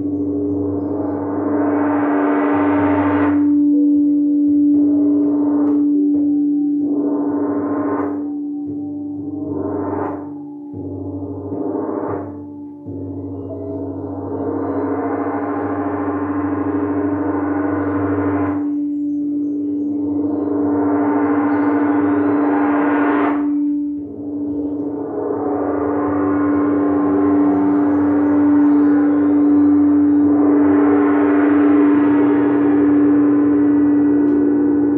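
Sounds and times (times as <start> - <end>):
crystal singing bowls ringing: 8.2 - 17.3, 18.6 - 22.4, 23.6 - 30.9.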